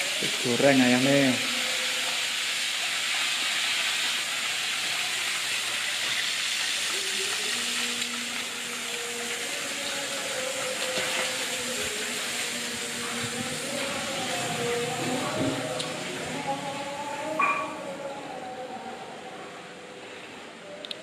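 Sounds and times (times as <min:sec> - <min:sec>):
chicken sizzling in hot oil: 0:00.0 - 0:15.8.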